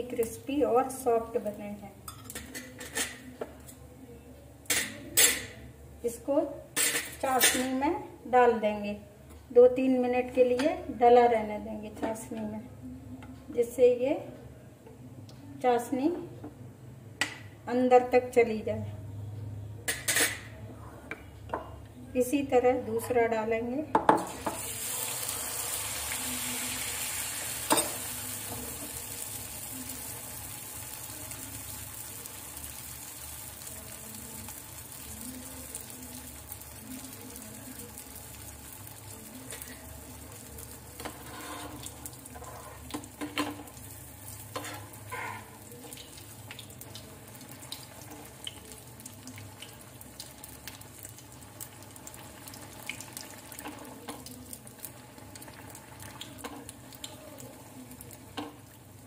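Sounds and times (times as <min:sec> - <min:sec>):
batter sizzling in hot fat: 0:24.3 - 0:59.0.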